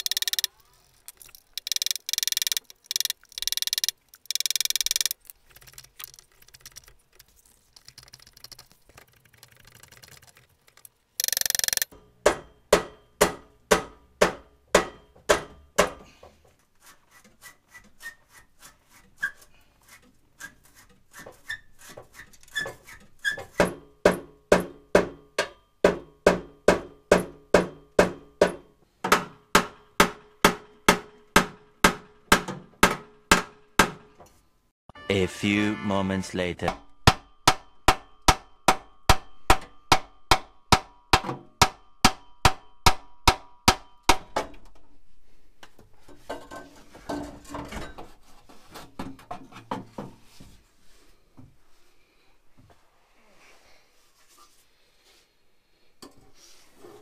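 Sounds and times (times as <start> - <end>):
hammer striking metal pipe: 11.9 - 16.0, 23.6 - 32.0, 36.7 - 44.5.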